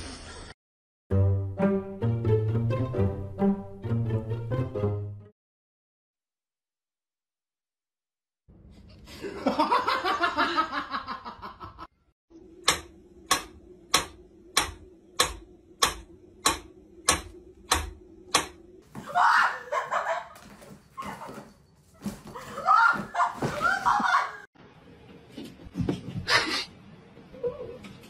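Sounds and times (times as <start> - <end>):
laughter: 9.1 - 11.9, 19.6 - 20.4, 23.2 - 24.5.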